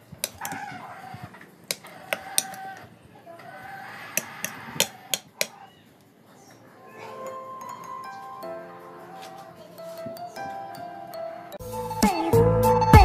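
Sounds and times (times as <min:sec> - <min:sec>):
chicken clucking: 0:00.0 - 0:11.6
spoon clinking ceramic bowl: 0:00.2 - 0:00.6, 0:07.1 - 0:08.6.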